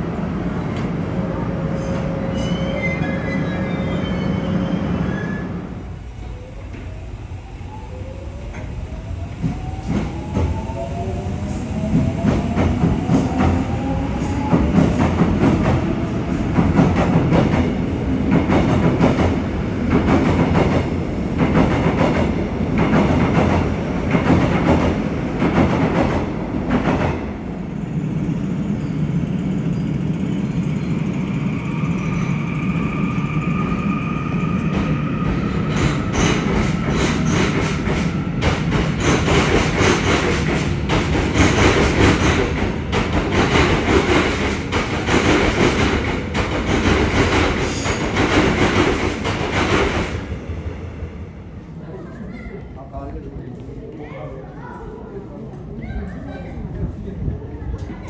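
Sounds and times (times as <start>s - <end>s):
train rumble: 4.1s - 58.0s
train wheels clickety-clack: 11.7s - 27.4s, 34.6s - 50.3s.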